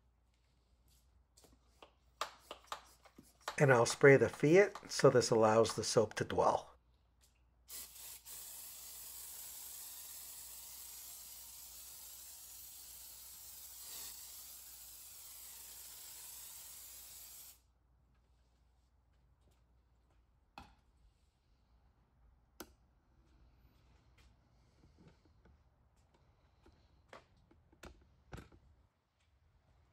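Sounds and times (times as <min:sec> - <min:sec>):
pressure sprayer hissing: 0:07.7 - 0:17.6.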